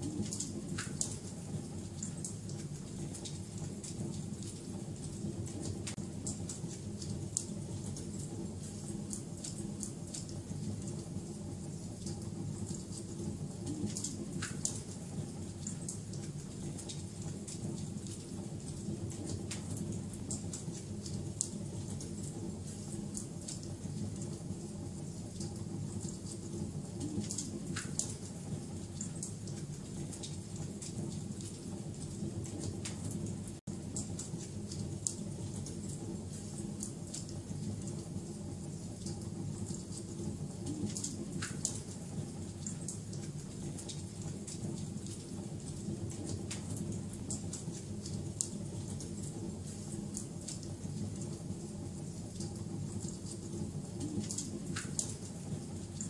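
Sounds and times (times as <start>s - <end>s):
fire pops and snaps: 0.0s - 1.3s, 13.6s - 15.0s, 15.6s - 23.7s, 26.3s - 28.3s, 32.4s - 33.2s, 39.0s - 42.0s, 42.6s - 50.7s, 52.4s - 55.4s
wood fire crackling and popping: 0.0s - 11.1s, 11.7s - 56.0s
low fire rumble: 0.0s - 56.0s.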